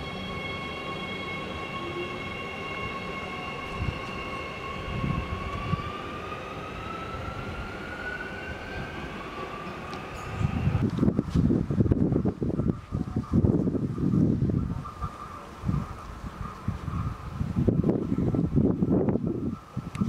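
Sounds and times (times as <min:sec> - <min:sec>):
electric train motors whining: 0:00.0 - 0:11.2.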